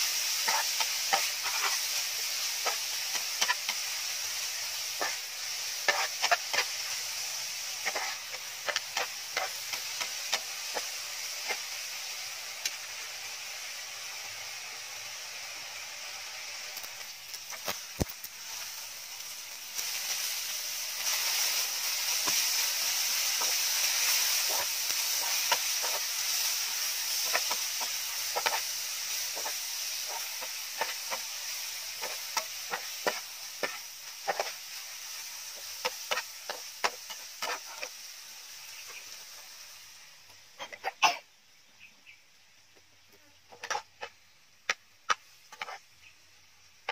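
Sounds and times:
meat sizzling in a pan: 0.0s - 46.9s
metal spatula scraping and tapping: 5.8s - 6.8s, 7.8s - 11.6s, 27.2s - 28.7s, 32.0s - 34.6s, 35.6s - 37.9s, 43.5s - 45.8s.

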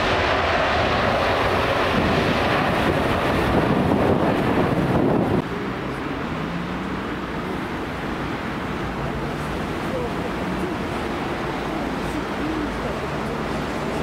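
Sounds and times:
loud rushing noise: 0.0s - 12.3s
steady outdoor noise: 0.0s - 14.0s
faint distant voices: 8.7s - 14.0s.

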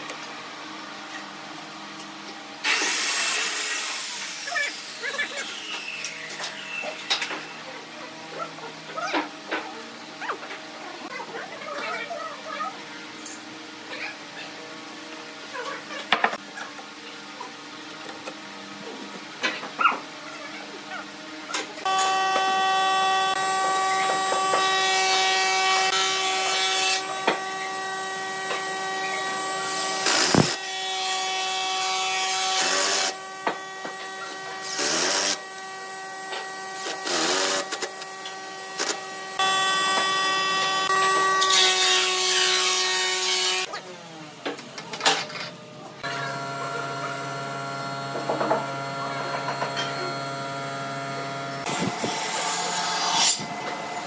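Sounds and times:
electric drill whining: 21.9s - 41.6s.

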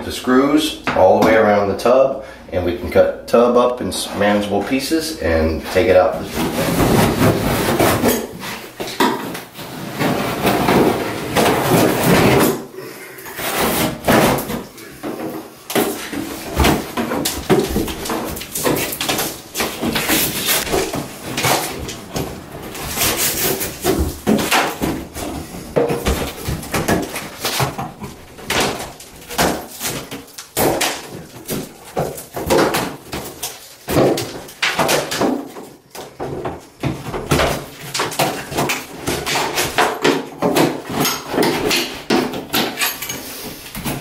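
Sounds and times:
scraper scraping drywall and caulk: 5.7s - 8.7s, 13.2s - 14.6s, 22.6s - 27.7s.

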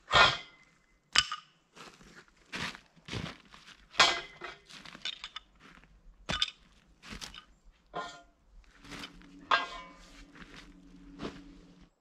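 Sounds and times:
metal rail knocks and clanks: 0.1s - 0.6s, 4.0s - 5.5s, 6.3s - 11.5s.

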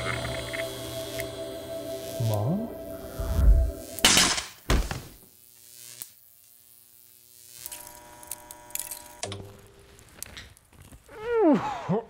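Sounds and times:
faint hum: 0.0s - 4.3s
electrical buzz with crackling: 0.0s - 11.2s
electric zap and bang: 3.2s - 6.2s.

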